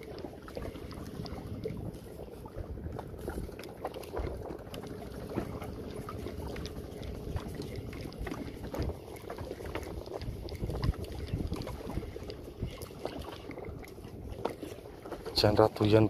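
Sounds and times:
waves lapping against boat hull: 0.0s - 16.0s
wind rumbling on microphone: 0.0s - 16.0s.

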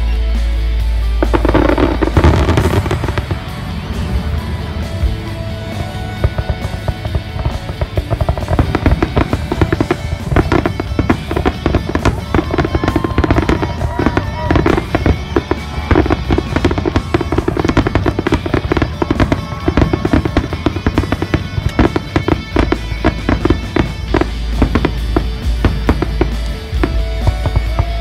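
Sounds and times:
music playing: 0.0s - 28.0s
fireworks bangs and crackles: 1.2s - 28.0s.

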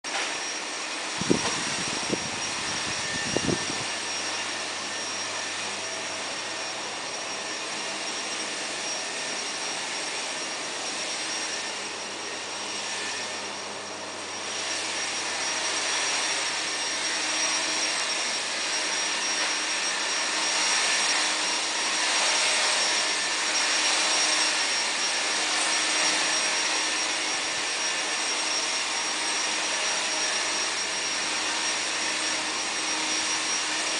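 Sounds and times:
whooshing air noise: 0.7s - 13.1s.

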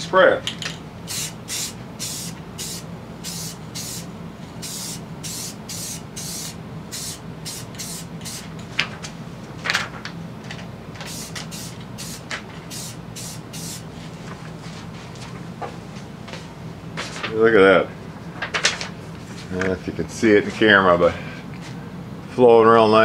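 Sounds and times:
spray paint can hissing: 1.1s - 8.4s, 11.1s - 13.8s.

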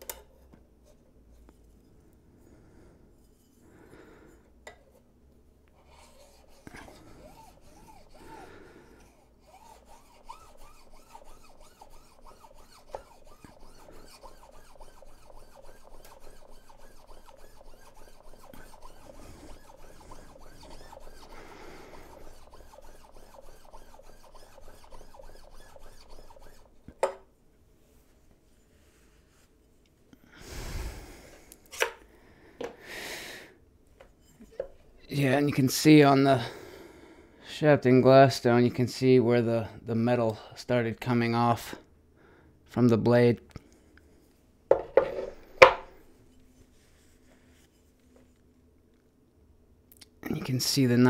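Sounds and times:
blade scraping on whetstone: 5.8s - 27.2s.

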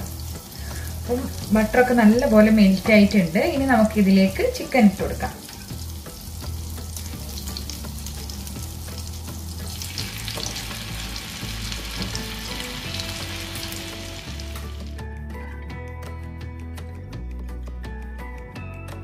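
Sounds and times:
butter sizzling in frying pan: 0.0s - 15.0s
music: 0.0s - 19.0s.

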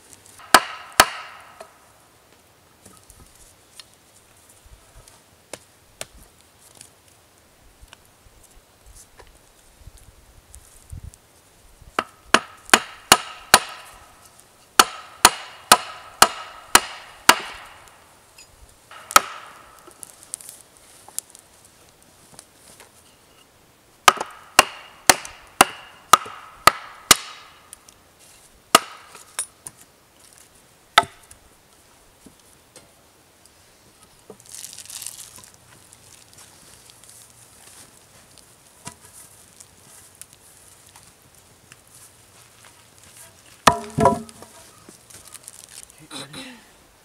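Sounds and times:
hatchet chopping wooden log: 0.4s - 1.7s, 12.0s - 13.9s, 14.8s - 17.9s, 18.9s - 20.0s, 24.0s - 27.5s, 28.7s - 29.2s, 31.0s - 31.3s, 43.6s - 44.5s.

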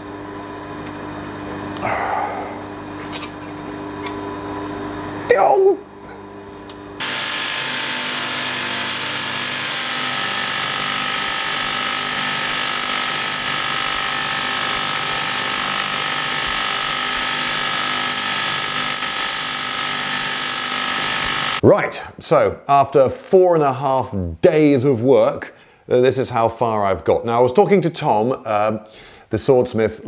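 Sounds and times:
motor hum: 0.0s - 21.6s
belt grinder grinding steel: 7.0s - 21.6s.

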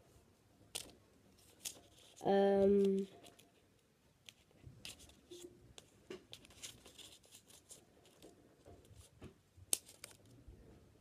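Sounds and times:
scissors snipping paper: 9.7s - 10.2s.

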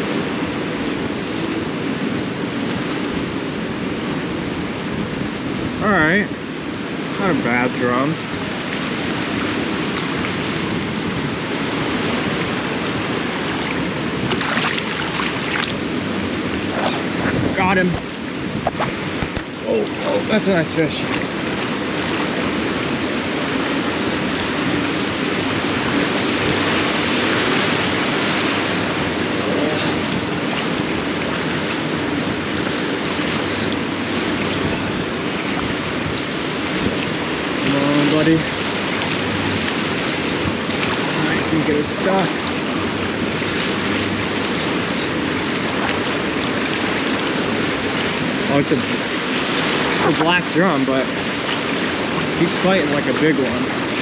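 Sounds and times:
water lapping around pilings: 0.0s - 54.0s
wind on microphone: 0.0s - 54.0s
fish splashing: 11.9s - 17.2s, 20.9s - 50.2s.

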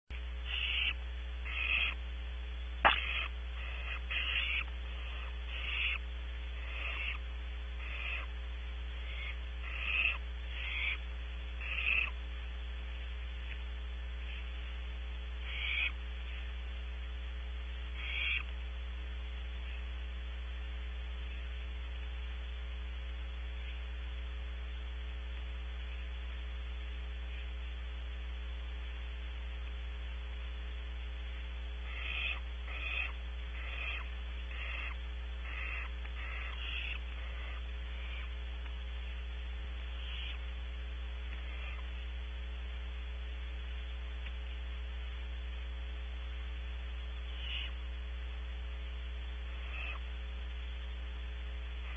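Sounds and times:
low electrical hum: 0.1s - 51.9s
owlets hissing calls: 0.2s - 2.1s, 2.7s - 12.8s, 13.5s - 18.7s, 31.3s - 42.1s, 47.1s - 48.0s, 49.3s - 50.4s, 51.5s - 51.9s.

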